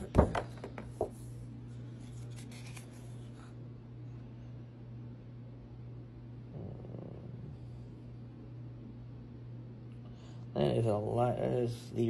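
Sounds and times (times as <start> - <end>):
low hum: 0.0 - 12.0
paper rustling: 0.2 - 3.6.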